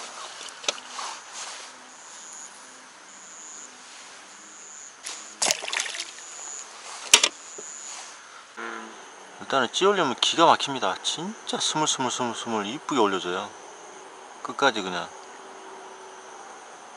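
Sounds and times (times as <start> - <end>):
water splashing: 0.0 - 1.1, 5.0 - 7.4
night insects chirping: 0.0 - 16.9.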